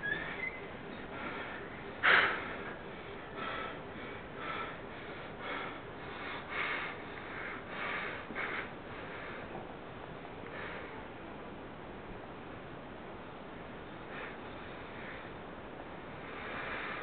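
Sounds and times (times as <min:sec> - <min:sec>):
person breathing noisily: 0:01.1 - 0:09.6, 0:16.1 - 0:17.0.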